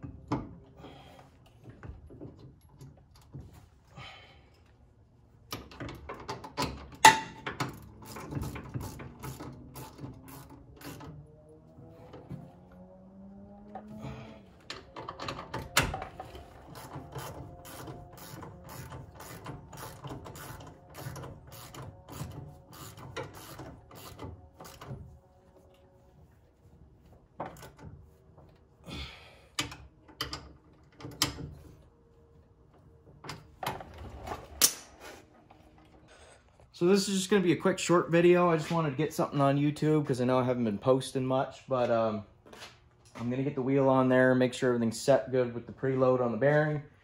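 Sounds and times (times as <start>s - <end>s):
hand ratchet clicking: 16.7s - 24.9s.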